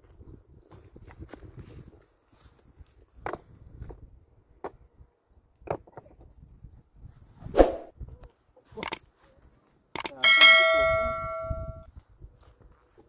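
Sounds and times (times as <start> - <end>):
footsteps on loose rocky ground: 0.0 - 4.0.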